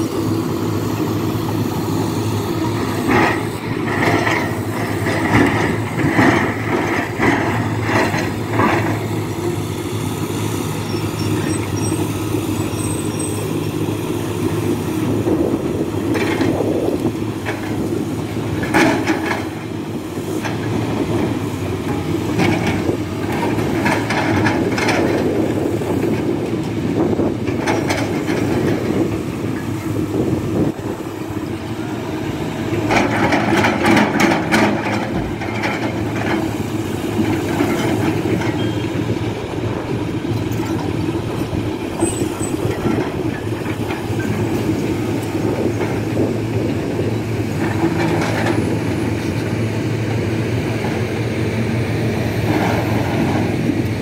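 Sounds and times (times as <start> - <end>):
excavator diesel engines running: 0.0 - 54.0
clanks and knocks of machines: 18.5 - 19.7, 20.4 - 29.7, 32.8 - 36.5, 39.8 - 49.5.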